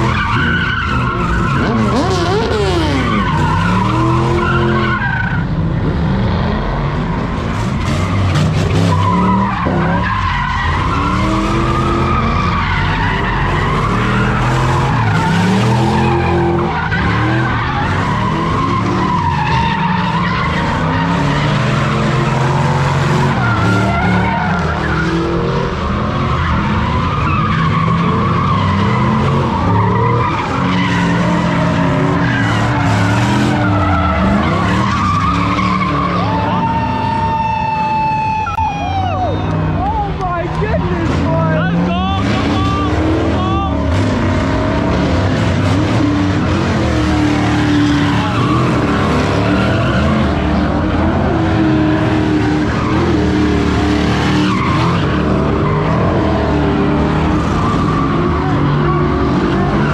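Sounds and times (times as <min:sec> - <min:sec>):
car engine revving: 0:00.0 - 0:37.4, 0:39.2 - 0:59.9
tyres squealing: 0:07.8 - 0:44.3.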